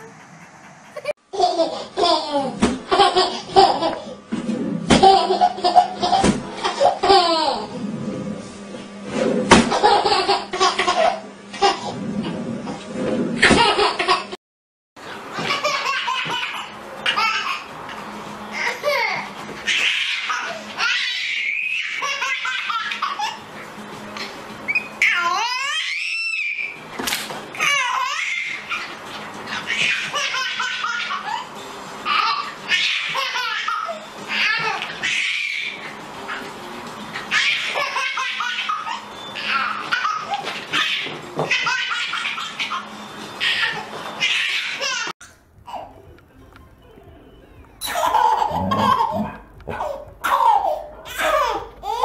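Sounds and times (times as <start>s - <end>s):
babies laughing: 0.9s - 4.1s, 4.9s - 7.8s, 9.7s - 11.8s, 15.2s - 17.7s, 18.6s - 23.5s, 25.0s - 26.8s, 27.6s - 36.5s, 37.2s - 45.1s, 47.8s - 52.0s.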